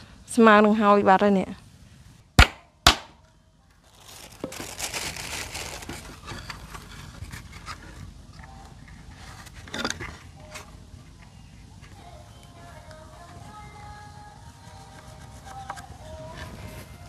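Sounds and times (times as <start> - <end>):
crinkling handling noise: 3.7 - 17.0.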